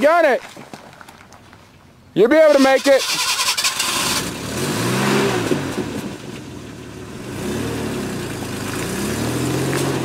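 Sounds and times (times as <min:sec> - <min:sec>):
truck engine revving: 0:02.6 - 0:06.2, 0:07.0 - 0:10.0.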